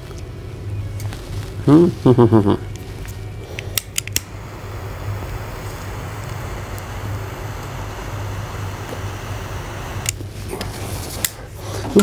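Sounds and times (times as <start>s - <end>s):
torch lighter hissing: 3.6s - 11.4s.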